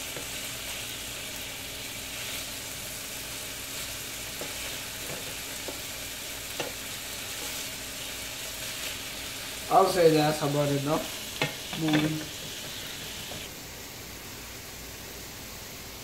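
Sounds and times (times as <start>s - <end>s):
beef sizzling in frying pan: 0.0s - 13.6s
spatula scraping pan: 6.5s - 7.8s.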